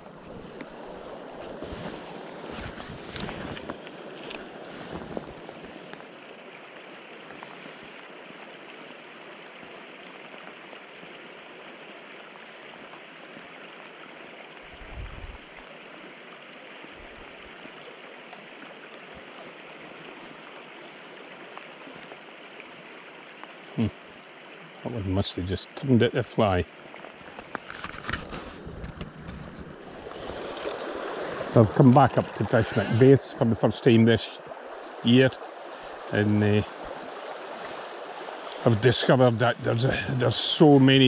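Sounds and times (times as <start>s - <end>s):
river water flowing: 0.0s - 41.0s
wind bump on microphone: 14.7s - 15.4s.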